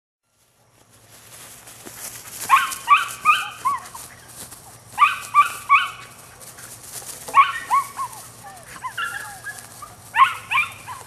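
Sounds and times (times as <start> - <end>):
puppy yipping: 2.4 - 4.2, 5.0 - 6.2, 7.3 - 11.0.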